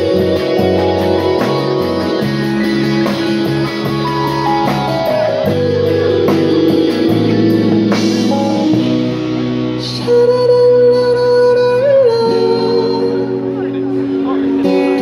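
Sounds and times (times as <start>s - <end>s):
live band playing pop-rock: 0.0s - 15.0s
person singing: 9.7s - 15.0s.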